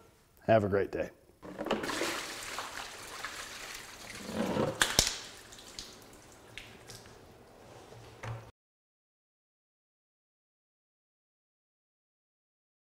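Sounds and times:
water splashing on concrete floor: 0:01.4 - 0:07.4.

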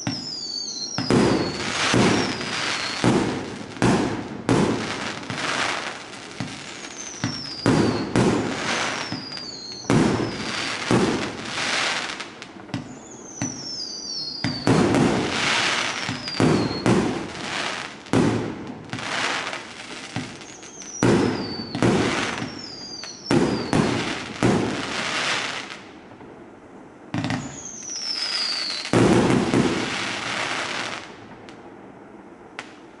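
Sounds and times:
firework whistles falling in pitch: 0:00.0 - 0:03.4, 0:06.4 - 0:12.1, 0:12.7 - 0:17.8, 0:20.2 - 0:25.3, 0:27.2 - 0:31.0
firework bursts with crackle: 0:00.0 - 0:26.5, 0:27.1 - 0:31.7.

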